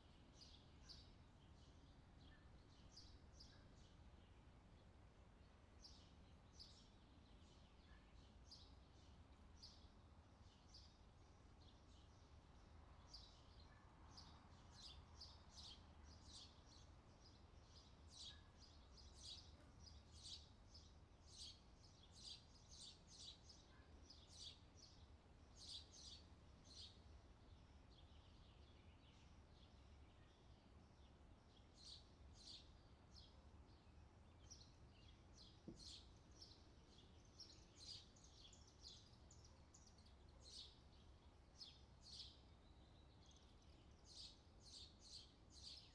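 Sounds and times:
faint bird chirps: 13.1s - 20.5s.

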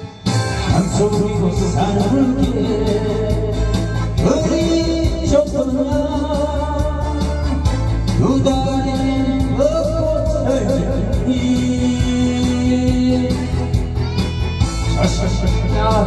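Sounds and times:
backing track with steady beat: 0.0s - 16.0s
man singing into a microphone: 0.7s - 13.8s, 14.8s - 16.0s.

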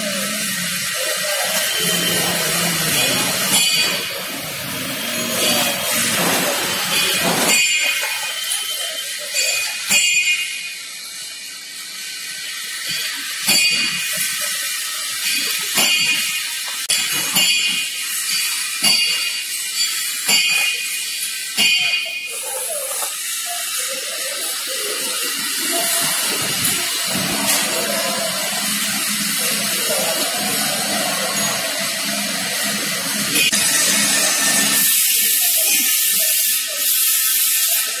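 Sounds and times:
compressed air hissing: 22.9s - 38.0s.

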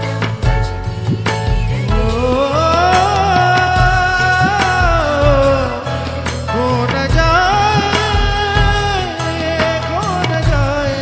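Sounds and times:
film song with drum beat: 0.0s - 11.0s.

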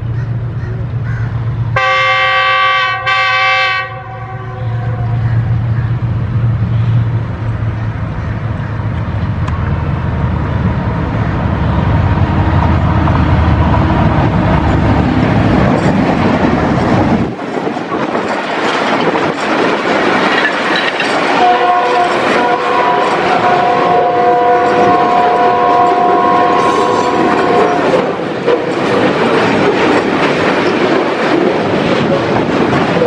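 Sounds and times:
locomotive engine rumble: 0.0s - 2.5s, 3.9s - 33.0s
train wheels clattering on rails: 11.2s - 33.0s.

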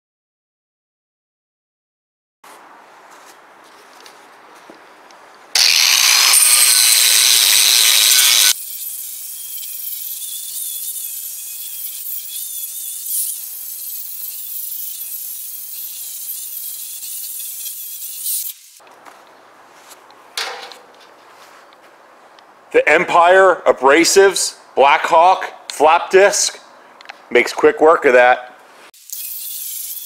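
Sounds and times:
angle grinder grinding metal: 5.6s - 18.8s, 29.0s - 30.0s.

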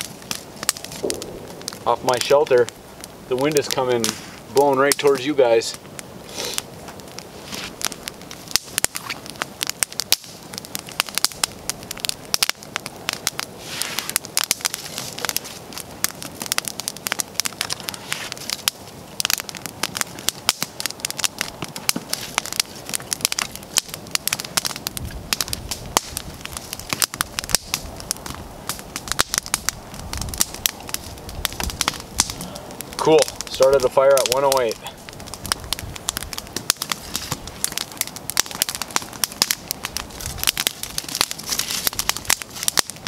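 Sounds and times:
campfire crackling and popping: 0.0s - 43.0s.

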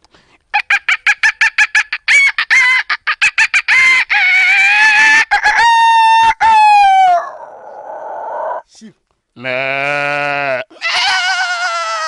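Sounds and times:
man imitating rooster crows: 3.7s - 8.7s, 10.2s - 12.0s.

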